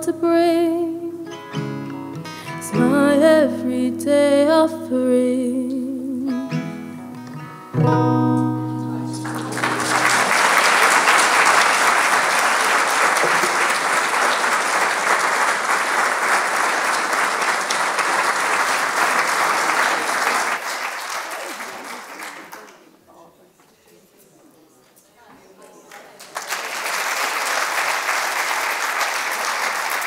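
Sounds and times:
acoustic guitar chords: 0:00.0 - 0:10.6
audience applauding: 0:08.9 - 0:23.0, 0:25.9 - 0:30.0.

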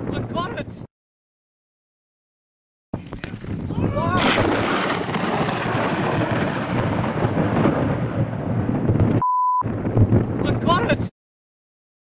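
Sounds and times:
thunder crack and rumble: 0:03.0 - 0:11.1.

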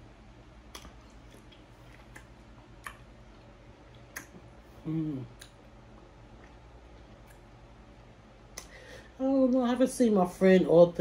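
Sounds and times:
faint low hum: 0:00.0 - 0:11.0
person humming: 0:04.8 - 0:05.5.

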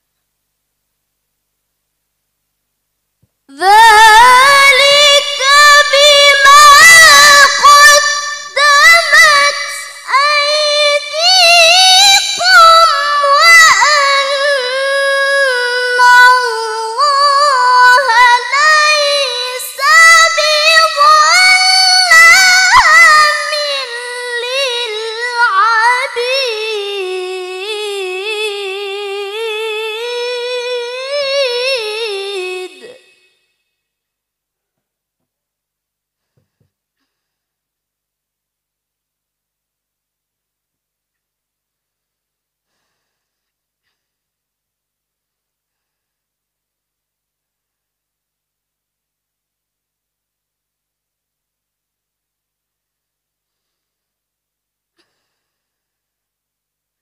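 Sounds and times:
woman reciting melodically: 0:03.5 - 0:33.3.

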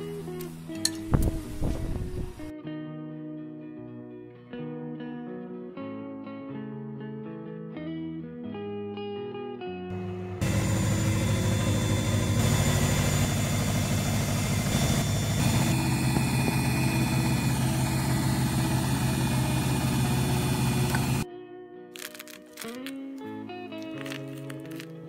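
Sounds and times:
blender motor running: 0:09.9 - 0:21.2.

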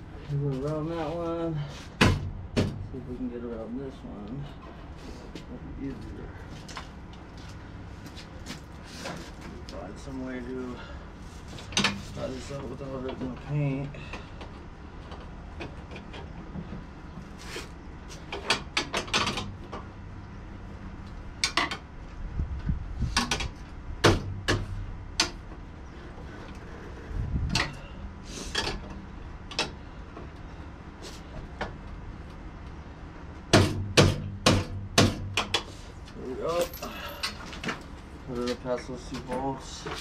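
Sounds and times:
hand tools clinking on metal: 0:36.4 - 0:37.5.

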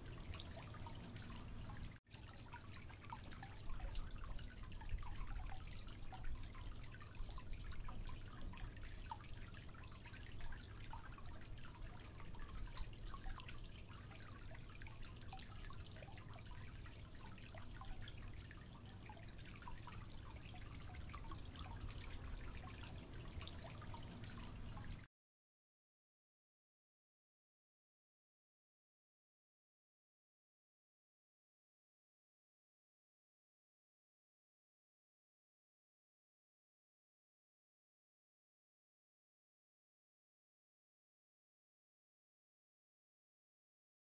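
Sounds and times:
low steady hum: 0:00.0 - 0:25.1.

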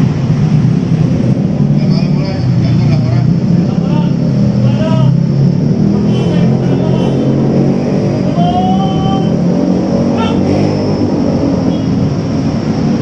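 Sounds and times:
raised voices calling out: 0:08.2 - 0:10.9.

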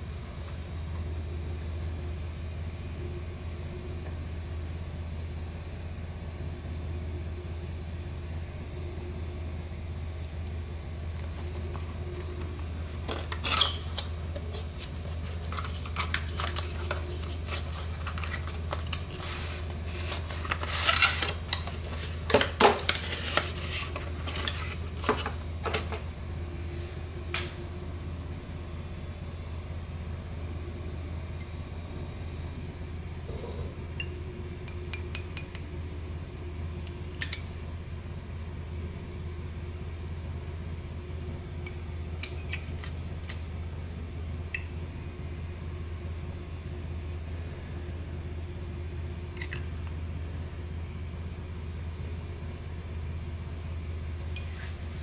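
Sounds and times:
steady low hum: 0:00.0 - 0:55.0
cardboard box rustling: 0:14.4 - 0:25.4.

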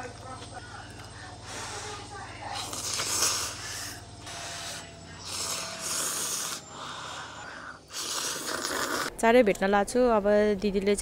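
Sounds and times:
person slurping noodles: 0:07.9 - 0:09.1.

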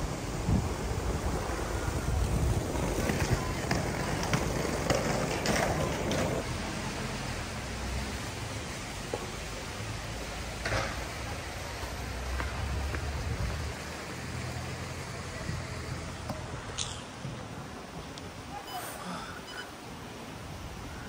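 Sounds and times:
wind buffeting microphone: 0:00.0 - 0:06.4, 0:12.6 - 0:14.2.

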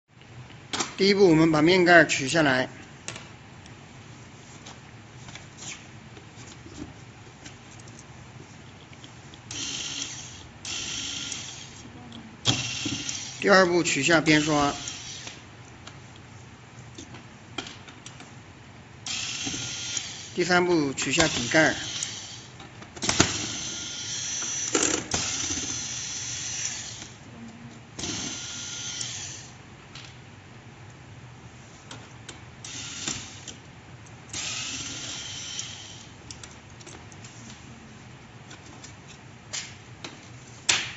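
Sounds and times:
electric screwdriver running: 0:09.5 - 0:11.8, 0:12.5 - 0:13.4, 0:21.2 - 0:27.1.

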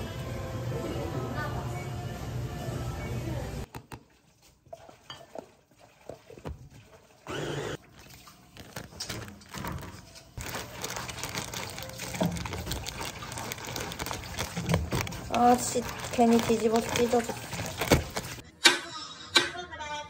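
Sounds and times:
plastic bag rustling: 0:08.0 - 0:18.4
utensil scraping plastic bowl: 0:11.9 - 0:18.4.

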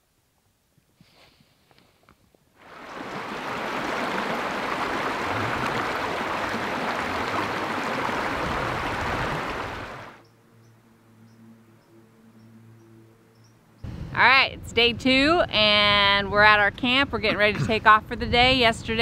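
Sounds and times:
creek rushing over rocks: 0:02.6 - 0:10.2.

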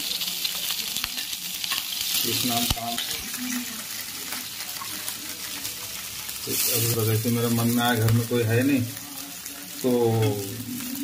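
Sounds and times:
fat sizzling in hot oil: 0:00.0 - 0:11.0.

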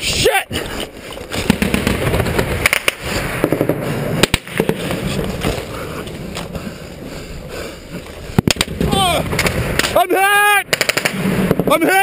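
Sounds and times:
gunshots: 0:01.4 - 0:05.0, 0:08.4 - 0:10.0, 0:10.6 - 0:11.8.

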